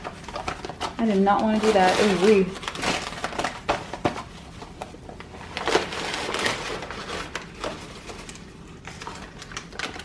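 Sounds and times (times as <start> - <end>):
paper bag crinkling and rustling: 0.0 - 10.0.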